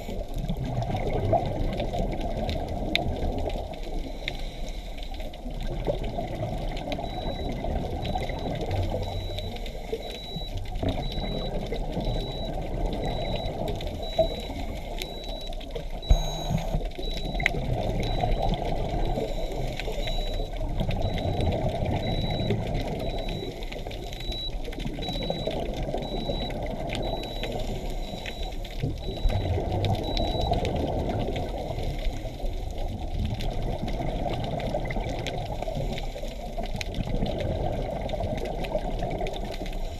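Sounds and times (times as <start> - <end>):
bubbles gurgling underwater: 0.0 - 4.2, 5.2 - 39.9
faint high beep: 7.0 - 30.6.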